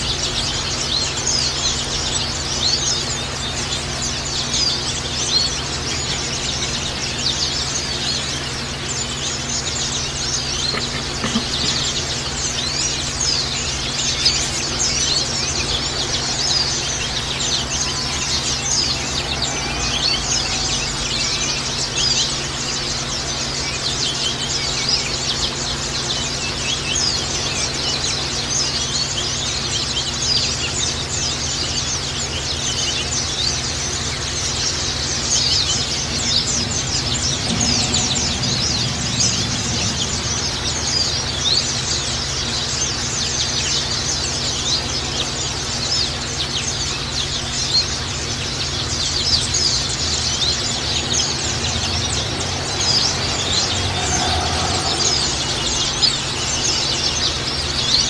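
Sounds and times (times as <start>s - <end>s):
birds chirping and twittering: 0.0s - 58.0s
low hum: 33.7s - 43.6s.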